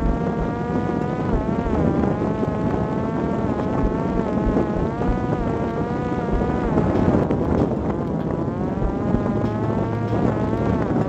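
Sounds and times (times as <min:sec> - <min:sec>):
drone propeller buzzing whine: 0:00.0 - 0:11.0
wind rush on microphone: 0:00.0 - 0:11.0.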